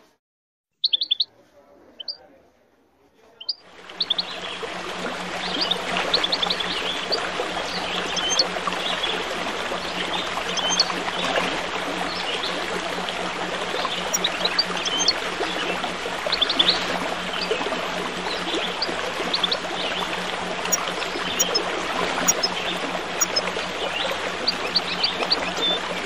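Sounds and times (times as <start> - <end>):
songbirds chirping: 0.8 - 1.3, 2.0 - 2.2, 3.3 - 4.7, 5.4 - 9.2, 16.3 - 21.6, 22.2 - 25.8
babbling water: 3.4 - 26.0.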